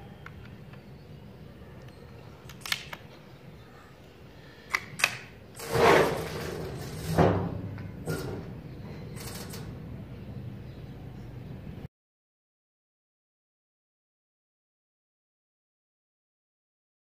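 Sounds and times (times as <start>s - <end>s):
air rifle action clicks: 1.8s - 3.2s, 4.6s - 5.4s
air rifle action scraping: 4.6s - 9.8s.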